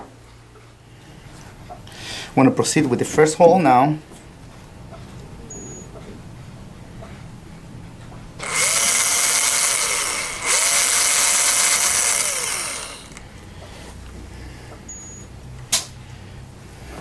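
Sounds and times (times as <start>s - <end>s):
bone drill whining: 8.4s - 13.5s
sharp click: 15.7s - 16.0s.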